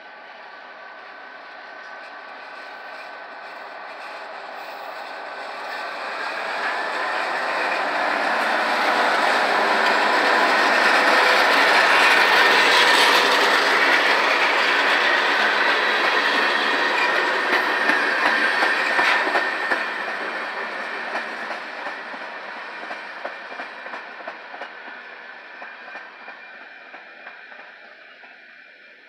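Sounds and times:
diesel locomotive engines: 0.0 - 29.0
train wheels rolling on rails: 0.0 - 29.0.

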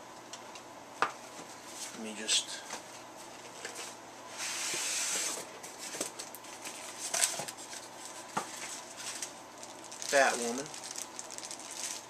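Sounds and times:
cardboard sliding rustle: 4.3 - 7.3
packing rustling and scraping: 5.2 - 12.0.

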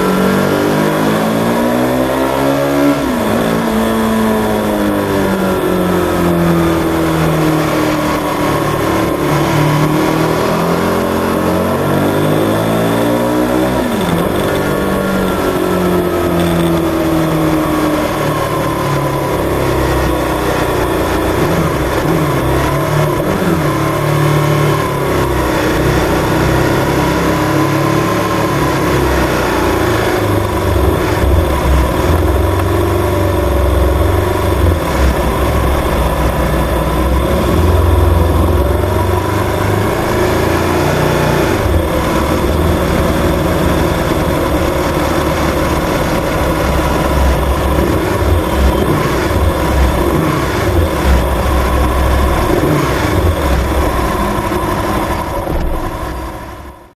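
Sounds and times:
motorcycle engine low rumble: 27.8 - 40.8, 41.4 - 56.9.

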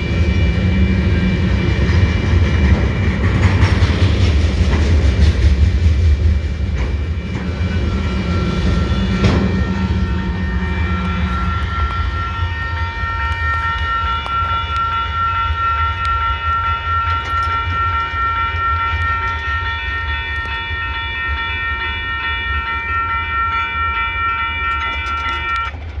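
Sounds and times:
freight train rumble: 0.0 - 26.0
railroad crossing bell ringing: 6.6 - 26.0.

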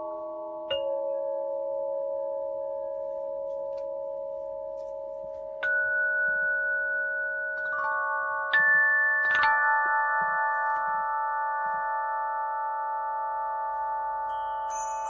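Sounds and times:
struck bell-like tones: 0.0 - 15.0.

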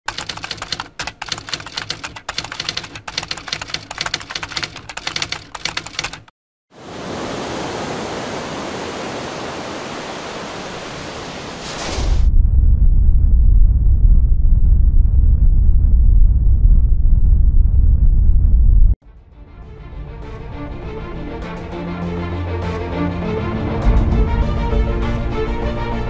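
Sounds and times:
typewriter key clatter: 0.1 - 6.3
loud deep rumble: 12.2 - 19.0.

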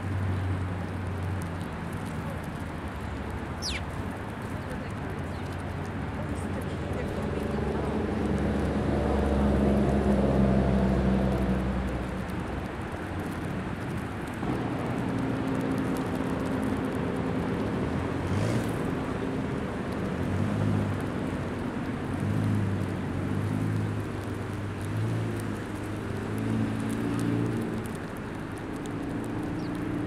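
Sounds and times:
outdoor background noise: 0.0 - 30.0
vehicle engine hum: 0.0 - 30.0.

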